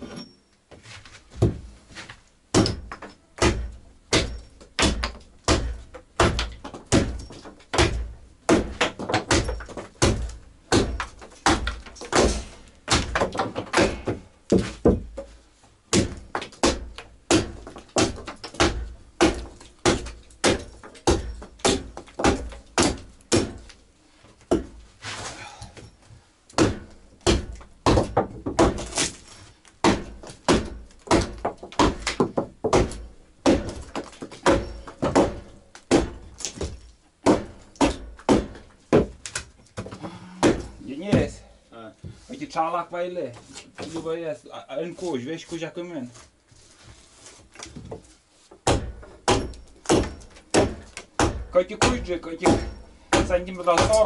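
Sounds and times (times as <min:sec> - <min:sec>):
hammer striking wood: 0:02.5 - 0:15.3, 0:15.9 - 0:23.7, 0:26.5 - 0:29.0, 0:29.8 - 0:39.2, 0:39.8 - 0:41.3, 0:48.6 - 0:54.0.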